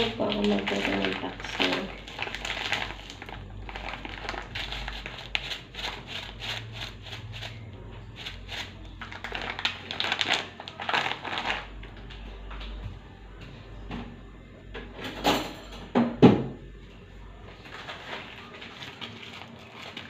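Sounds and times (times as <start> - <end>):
plastic bag crinkling: 0.0 - 7.6, 8.2 - 12.1, 17.6 - 20.0.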